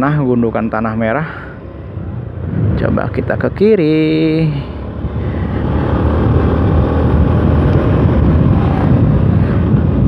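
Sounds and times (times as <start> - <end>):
motorcycle engine rumble: 0.0 - 10.0
wind noise on microphone: 1.9 - 3.6, 4.8 - 10.0.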